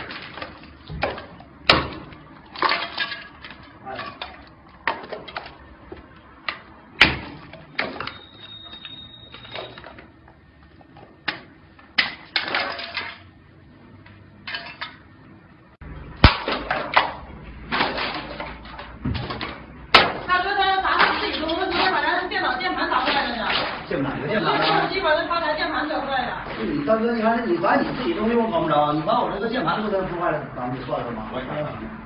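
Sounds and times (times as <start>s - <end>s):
hammer cracking phone glass: 1.1s - 2.0s.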